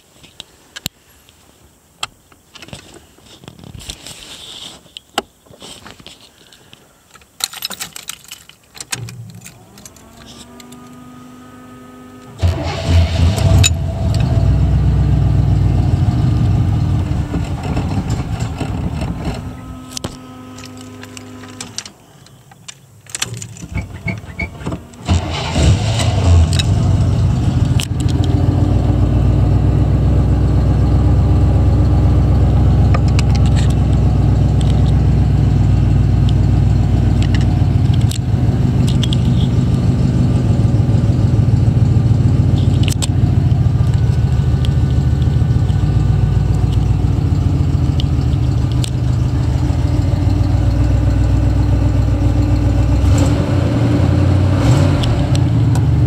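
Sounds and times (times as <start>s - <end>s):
clicks and rustling: 2.0s - 11.0s, 17.1s - 25.4s, 27.5s - 28.4s, 32.8s - 35.0s, 36.2s - 39.9s, 42.6s - 47.2s, 47.8s - 50.4s
starter whine: 8.9s - 56.0s
car engine running loudly: 9.4s - 21.9s, 23.8s - 56.0s.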